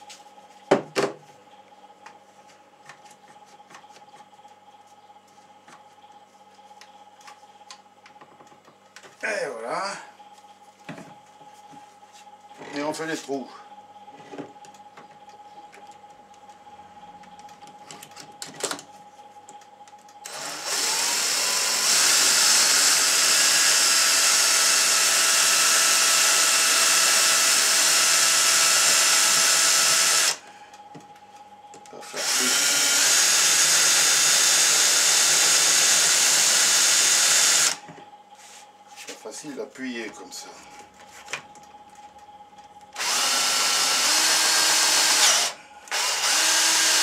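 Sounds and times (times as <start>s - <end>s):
cordless drill boring into wood: 20.3s - 30.4s, 32.0s - 37.8s, 43.0s - 47.0s.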